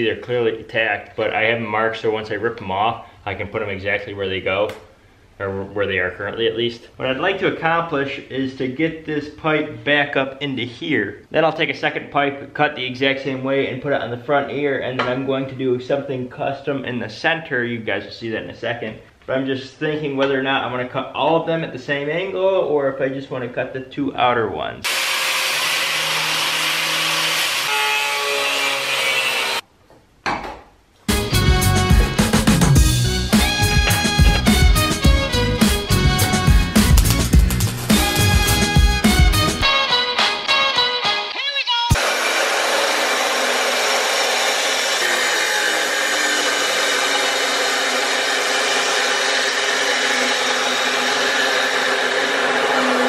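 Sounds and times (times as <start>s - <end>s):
angle grinder cutting metal pipe: 24.9s - 29.6s, 36.2s - 39.6s, 41.9s - 53.0s
music: 31.1s - 42.0s.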